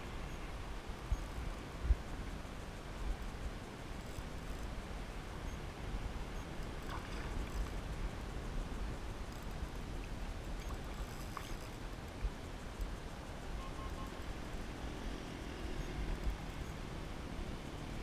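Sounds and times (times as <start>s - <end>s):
wind rumbling on microphone: 0.0s - 13.6s
water lapping at a kayak: 6.6s - 8.2s, 9.5s - 12.4s.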